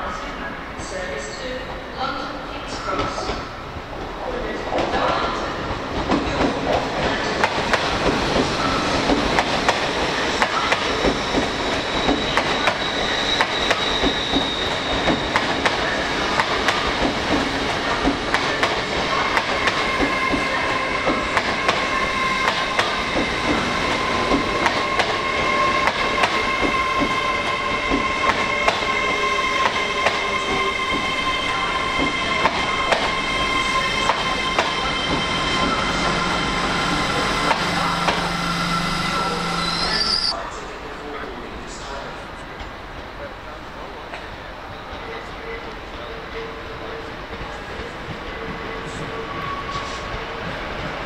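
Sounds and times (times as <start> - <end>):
train wheels clicking on rail joints: 5.9 - 33.2
wheels squealing: 10.9 - 15.4, 19.1 - 40.4.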